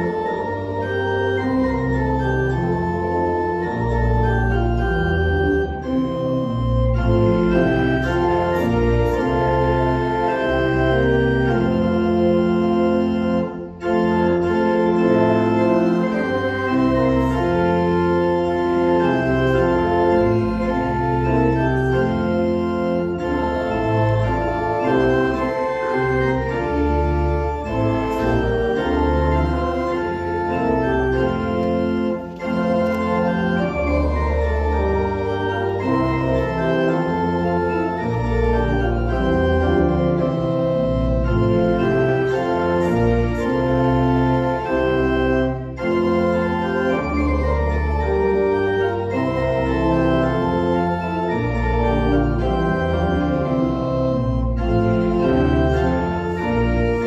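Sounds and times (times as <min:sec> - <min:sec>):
church organ playing chords: 0:00.0 - 0:57.0.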